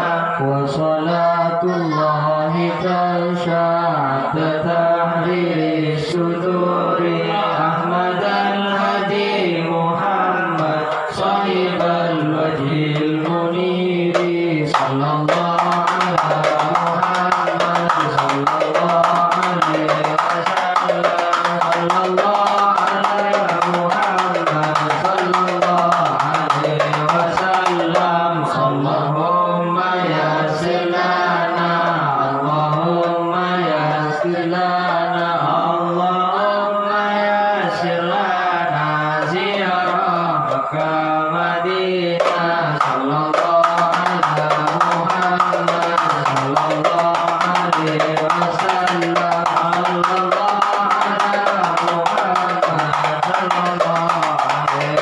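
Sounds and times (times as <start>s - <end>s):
men chanting: 0.0s - 55.0s
frame drums beating: 12.8s - 13.4s, 14.1s - 28.2s, 42.2s - 55.0s.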